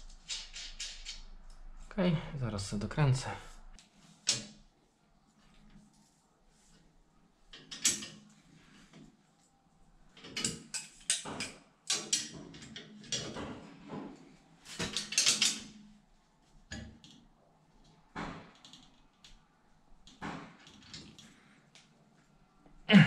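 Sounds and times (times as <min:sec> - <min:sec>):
metallic clinks of bolt and nut: 0:14.8 - 0:15.8.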